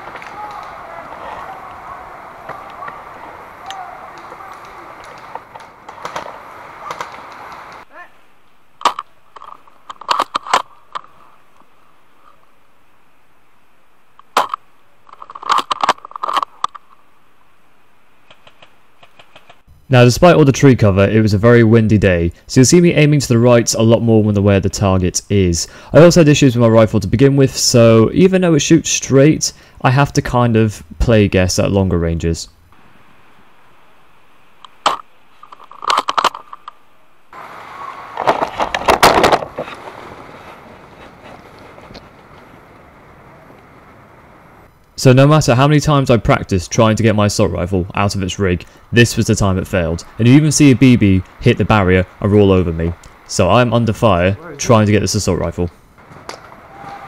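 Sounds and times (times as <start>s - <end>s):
faint steady hiss: 0.0s - 57.0s
sharp clicks and knocks: 18.2s - 19.7s, 34.6s - 36.8s.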